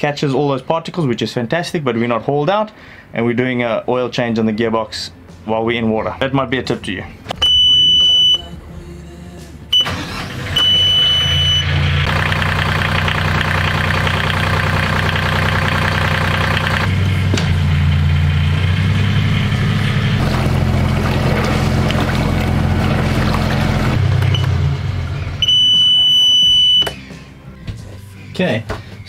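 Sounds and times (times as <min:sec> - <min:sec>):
warning buzzer beeps: 0:07.4 - 0:08.5, 0:10.5 - 0:11.7, 0:25.4 - 0:26.9
diesel engine cranking and idling: 0:09.7 - 0:26.2.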